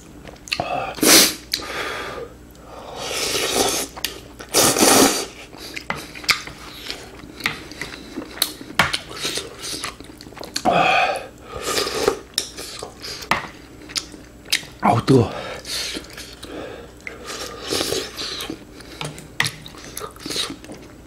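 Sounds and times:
noodles slurped: 3.1 - 6.3, 19.6 - 20.8
chewing: 5.3 - 10.7, 11.8 - 14.8, 15.6 - 21.0.

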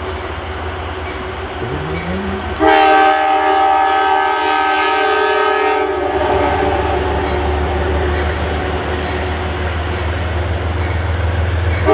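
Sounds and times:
train rumbling: 0.0 - 11.9
train horn blast: 1.7 - 7.2.

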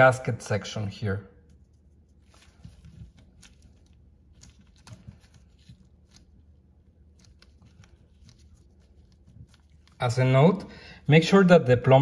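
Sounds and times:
soft clicks and rustles of gloves: 1.4 - 10.2.

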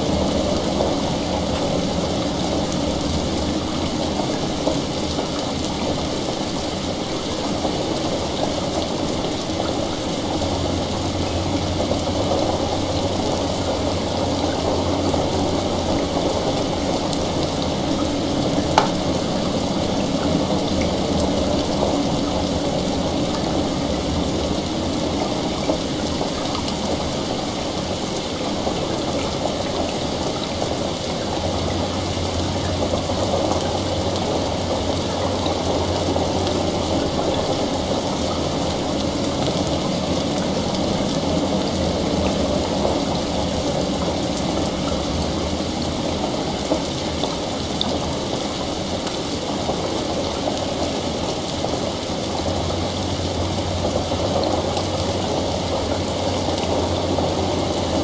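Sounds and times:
heavy rain: 0.0 - 58.0.

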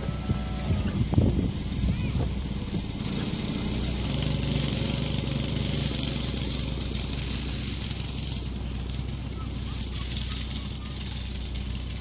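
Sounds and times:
constant high hiss: 0.0 - 12.0
go-kart engines droning: 0.0 - 12.0.

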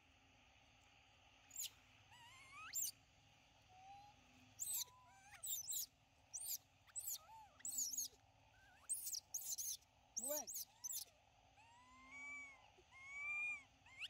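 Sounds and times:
infant monkeys calling: 1.5 - 2.9, 4.6 - 14.0.

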